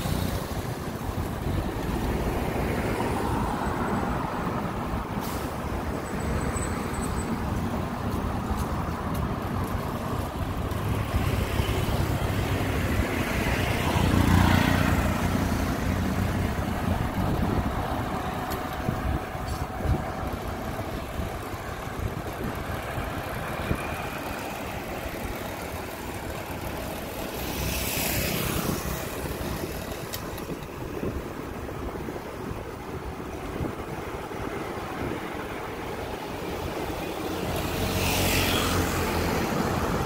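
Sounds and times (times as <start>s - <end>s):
traffic rumble: 0.0s - 40.0s.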